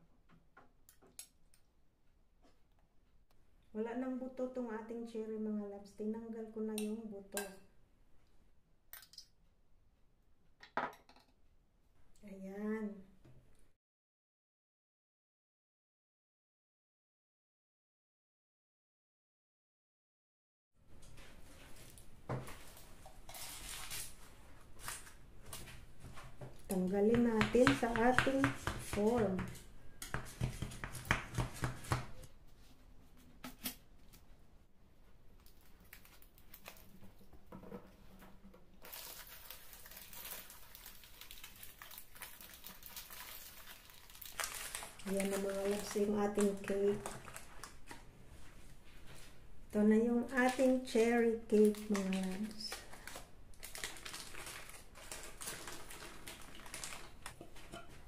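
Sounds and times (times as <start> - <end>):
paper rustling: 22.6 - 25.8, 51.6 - 57.6
baking parchment crackling: 38.8 - 47.9, 50.3 - 57.9.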